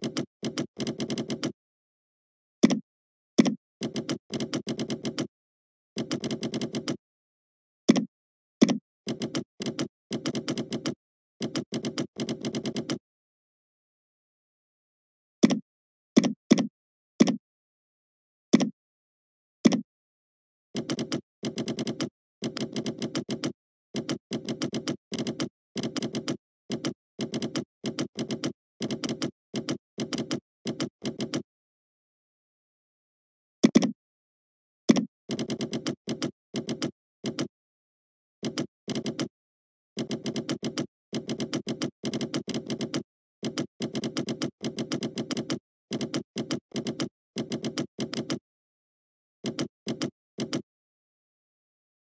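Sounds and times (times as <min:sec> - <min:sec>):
computer keyboard typing: 0:00.0 - 0:01.6, 0:03.4 - 0:05.3, 0:06.0 - 0:07.0, 0:07.9 - 0:13.0, 0:20.8 - 0:31.5, 0:34.9 - 0:37.5, 0:38.4 - 0:39.3, 0:40.0 - 0:48.4, 0:49.4 - 0:50.7.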